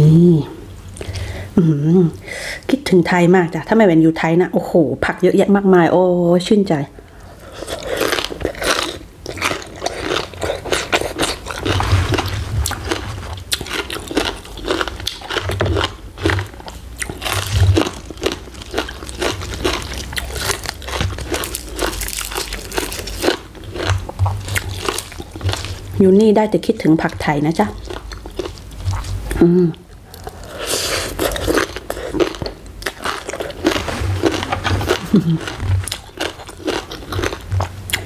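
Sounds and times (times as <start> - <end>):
person chewing crunchy salad: 7.0 - 26.0, 27.5 - 38.0.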